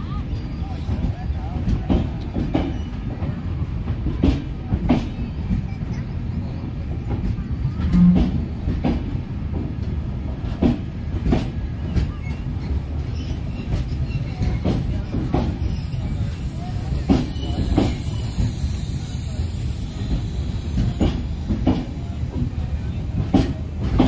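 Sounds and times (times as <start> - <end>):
train coaches rumbling past: 0.0 - 24.0.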